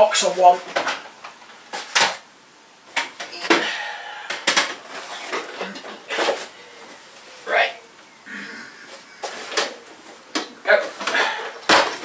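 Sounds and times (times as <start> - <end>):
boxes knocking and clattering: 9.2 - 12.0.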